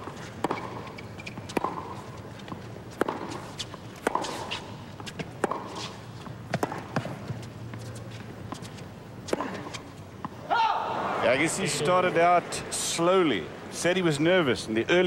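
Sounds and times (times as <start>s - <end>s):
racket hitting tennis ball: 0.0s - 7.9s
tennis ball bouncing: 0.0s - 10.4s.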